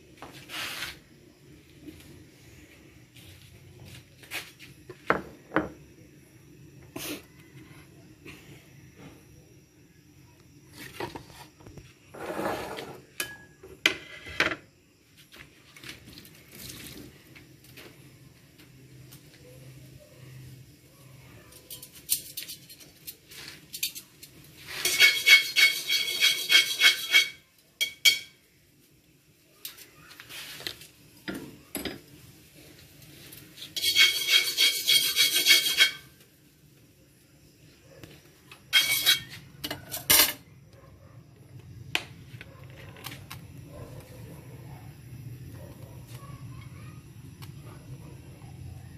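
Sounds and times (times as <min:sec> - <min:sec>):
spatula scraping metal wok: 0:11.1 - 0:14.6, 0:24.6 - 0:28.2, 0:33.5 - 0:36.2, 0:38.7 - 0:40.3
dishes shuffled on counter: 0:12.1 - 0:13.1
utensils clacking against pan: 0:24.7 - 0:28.4, 0:33.6 - 0:36.2, 0:38.7 - 0:40.4.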